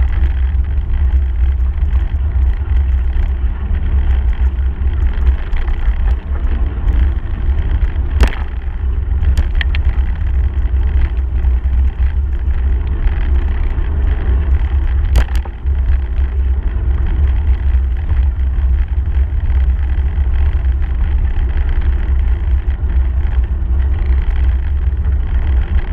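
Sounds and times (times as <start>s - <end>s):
bicycle tyres on gravel: 0.0s - 25.9s
wind buffeting microphone: 0.0s - 25.9s
sharp knocks: 8.2s - 8.6s.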